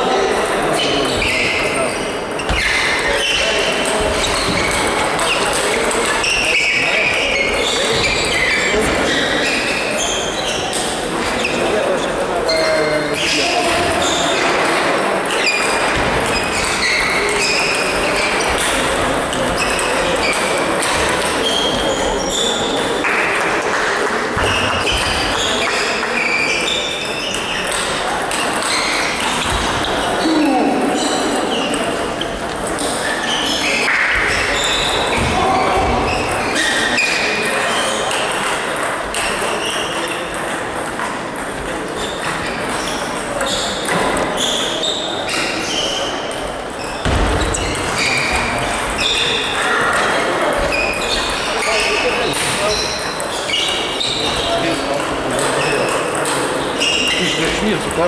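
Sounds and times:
din of busy sports hall: 0.0 - 58.0
murmur of chatter: 0.0 - 58.0
table tennis balls clicking: 38.0 - 44.3.

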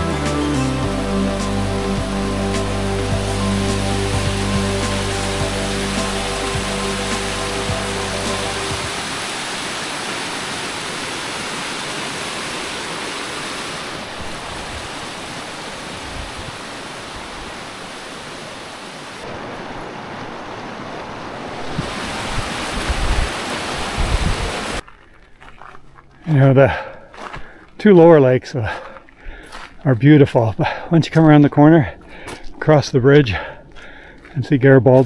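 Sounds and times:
fast-flowing water rushing: 0.0 - 24.8
wind buffeting microphone: 21.6 - 24.8.

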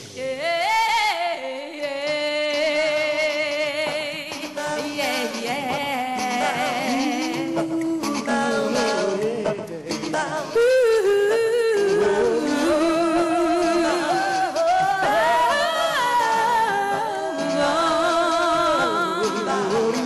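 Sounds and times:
person singing pop with music: 0.0 - 20.0.

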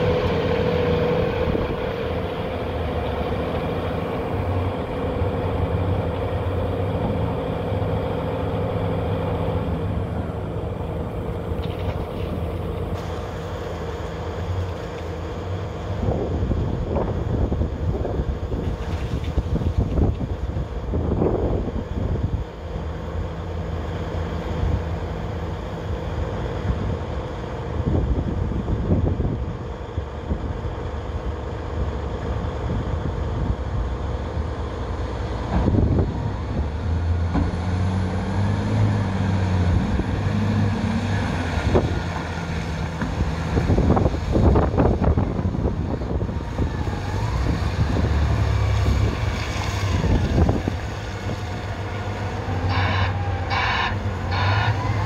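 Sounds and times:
dump truck engine driving up: 0.0 - 55.0
excavator engine idling: 50.3 - 55.0.

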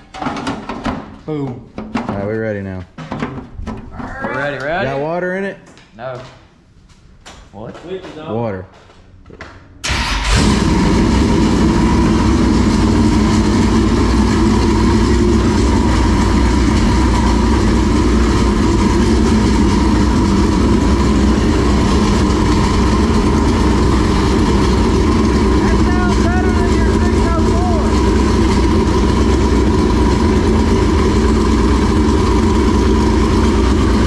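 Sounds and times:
race car engine running loudly: 9.9 - 34.0.

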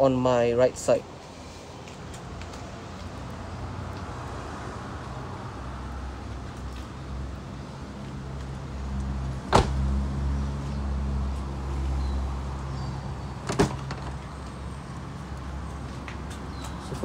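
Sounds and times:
car door shutting thud: 9.5 - 9.8, 13.4 - 14.1.

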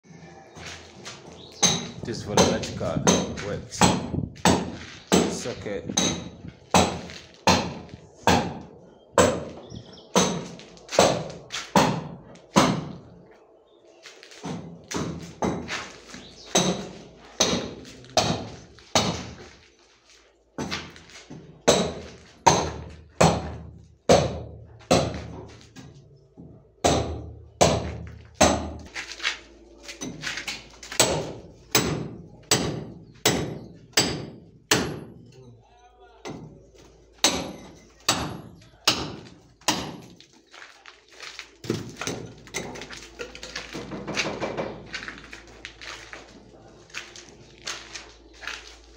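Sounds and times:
hammer striking chisel into concrete: 1.6 - 8.6, 10.2 - 12.9, 16.5 - 19.3, 21.7 - 25.3, 26.8 - 28.8, 30.0 - 35.2, 37.2 - 40.1.

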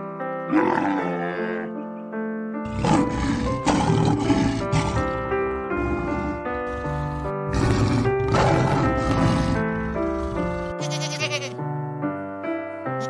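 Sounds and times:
background music: 0.0 - 13.0
rough rumbling roar: 2.7 - 10.7
animal bellowing call: 2.7 - 11.3.

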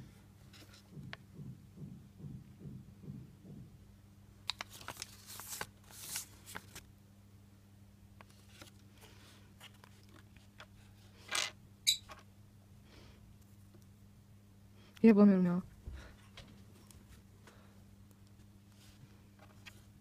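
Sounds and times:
paper leaflet rustling and crinkling: 4.5 - 6.9, 8.2 - 11.4, 18.8 - 19.9
plastic toy parts handled: 9.6 - 12.3.

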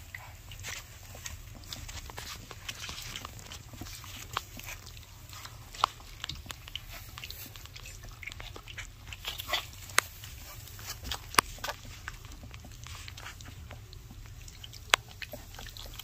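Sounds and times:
puppies lapping and chewing: 0.0 - 16.0.

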